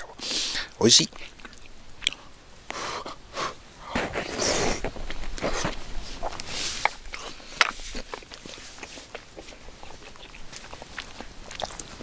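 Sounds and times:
breathy sniff: 0:00.2 - 0:00.8, 0:02.7 - 0:08.0.

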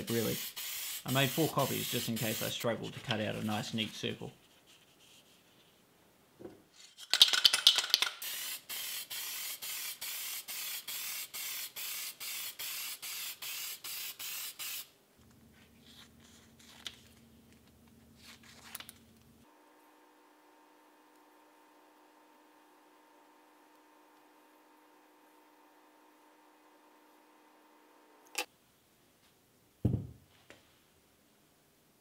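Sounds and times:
aerosol spray hissing bursts: 0:00.0 - 0:02.6, 0:08.2 - 0:14.9
aerosol can rattle: 0:07.0 - 0:09.8.

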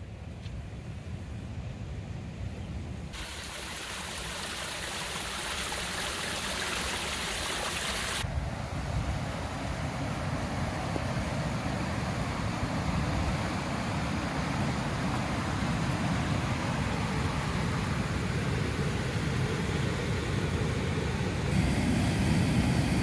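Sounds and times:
rushing stream water: 0:03.2 - 0:08.2.

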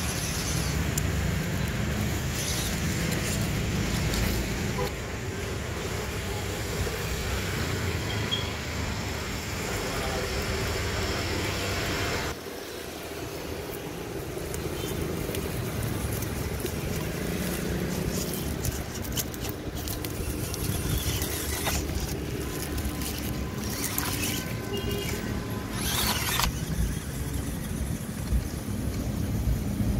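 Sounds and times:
small electric motor whine: 0:00.0 - 0:04.8, 0:13.3 - 0:29.1
tyres crackling over dry leaves: 0:00.0 - 0:07.8, 0:09.3 - 0:29.9.

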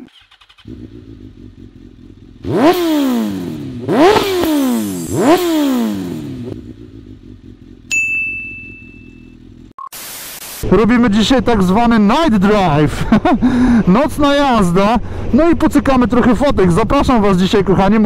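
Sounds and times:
motorcycle engine revving: 0:00.0 - 0:09.7
high ping with click: 0:07.9 - 0:09.4.

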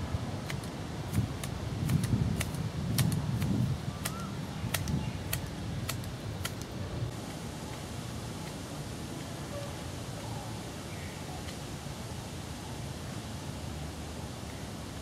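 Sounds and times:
sharp irregular clicks: 0:00.4 - 0:06.7.

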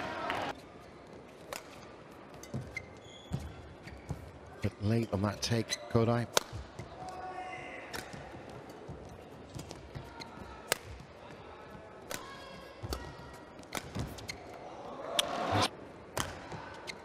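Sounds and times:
shoes squeaking on court: 0:00.5 - 0:06.9, 0:12.4 - 0:14.6.

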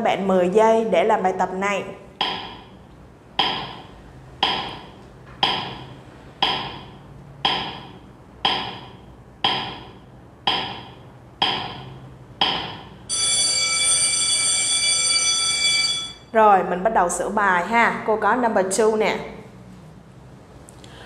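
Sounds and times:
sharp wooden ticking: 0:04.4 - 0:12.8
alarm clock ringing: 0:13.1 - 0:16.3.

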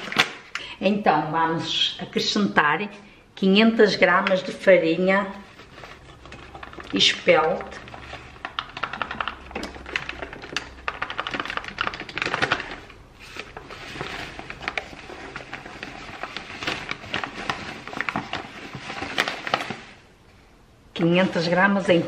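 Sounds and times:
paper bag crinkling: 0:00.0 - 0:00.5, 0:05.4 - 0:20.0.

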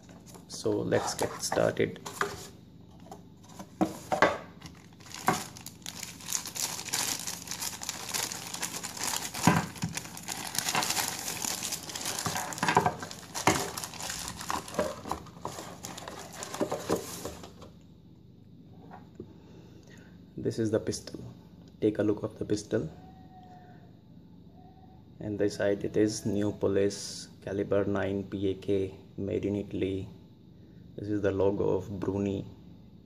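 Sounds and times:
plastic wrapping crinkling: 0:04.6 - 0:17.5.

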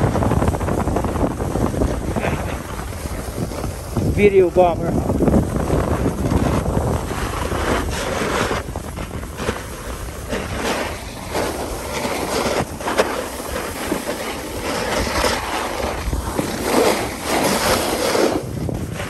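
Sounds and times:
snowboard scraping over snow: 0:00.0 - 0:19.0.

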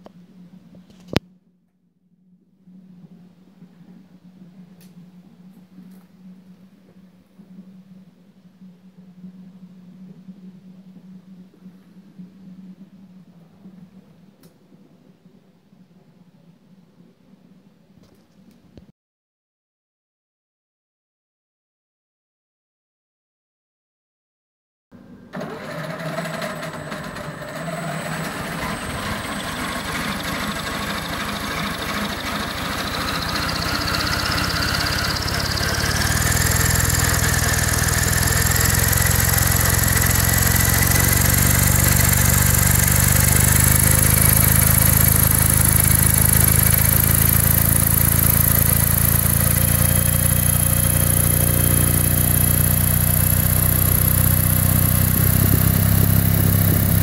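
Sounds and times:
electric motor whine: 0:25.4 - 0:57.0
rotor whirring: 0:25.4 - 0:57.0.

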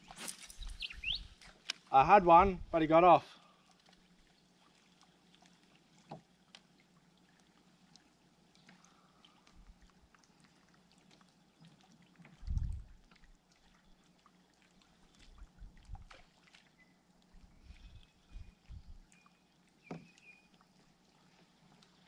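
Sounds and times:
faint water sounds: 0:00.0 - 0:22.0.

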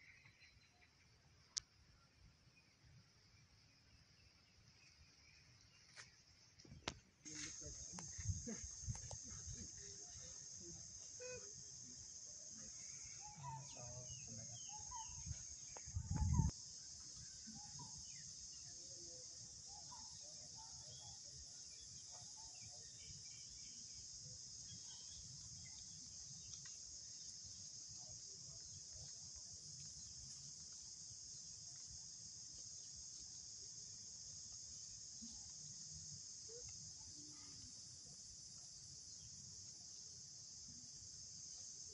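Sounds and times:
insect chorus drone: 0:00.0 - 0:41.9
faint chirping calls: 0:07.6 - 0:40.1.

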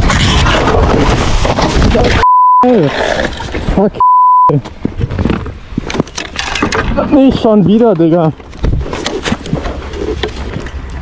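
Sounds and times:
censor bleep: 0:02.2 - 0:02.7, 0:04.0 - 0:04.6.

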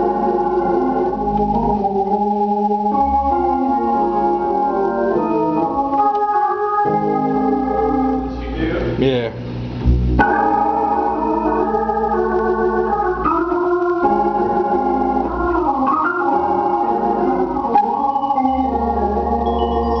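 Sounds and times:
organ playing held chords: 0:00.0 - 0:20.0.

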